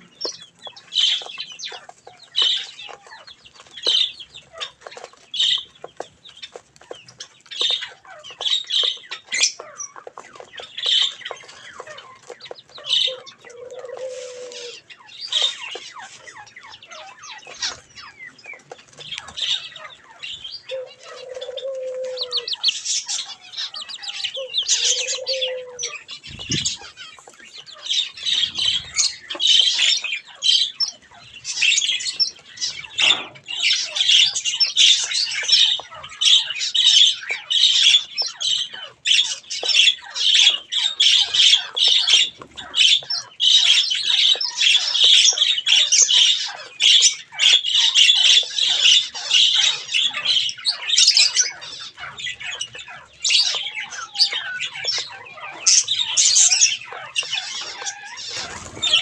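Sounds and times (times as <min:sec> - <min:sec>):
small birds chirping and chattering: 0:00.0 - 0:59.0
low drawn-out coo: 0:13.1 - 0:14.8, 0:20.7 - 0:22.6, 0:24.4 - 0:26.8.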